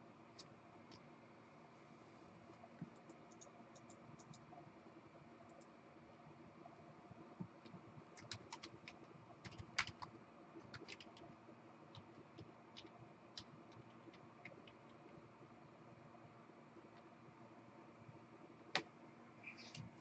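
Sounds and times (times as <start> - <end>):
faint steady hum: 0.0 - 20.0
keyboard typing clicks: 2.8 - 4.5, 7.5 - 11.2, 11.9 - 15.0.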